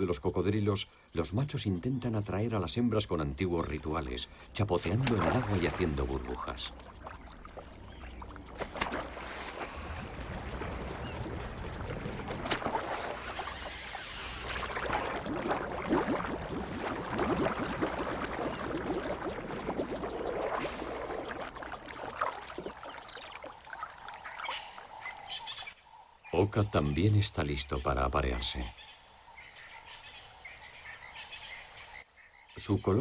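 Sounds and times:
water splashing and churning: 4.6s - 25.4s
bubbles blowing: 5.0s - 24.2s.

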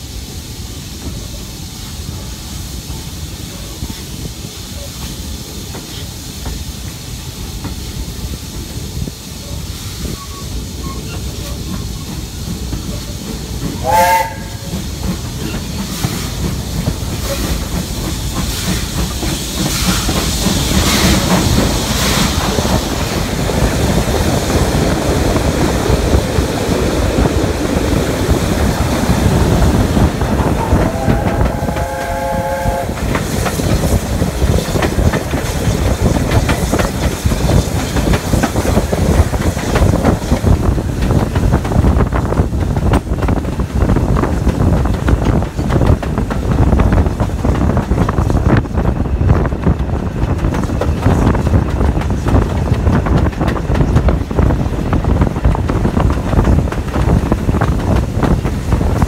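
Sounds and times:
steam train running: 0.0s - 59.0s
locomotive whistle: 13.8s - 14.8s, 30.6s - 33.0s.

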